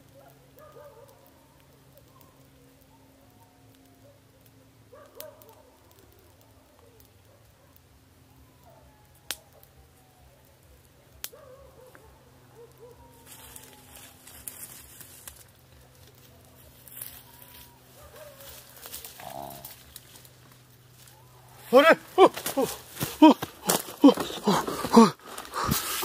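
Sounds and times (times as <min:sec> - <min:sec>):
rustling in dry undergrowth: 0:11.7 - 0:26.0.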